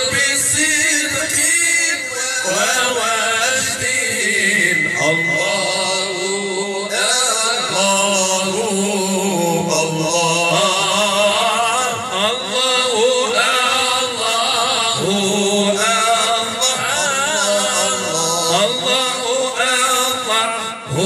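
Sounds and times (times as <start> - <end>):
men chanting through a pa system: 0.0 - 21.0
steady high whistle: 4.3 - 7.1.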